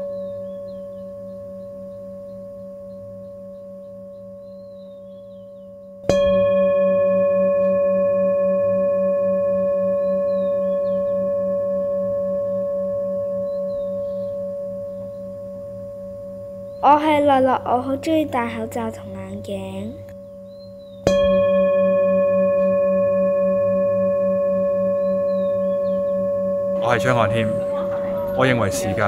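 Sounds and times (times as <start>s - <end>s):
bell ringing: 21.1s - 29.0s.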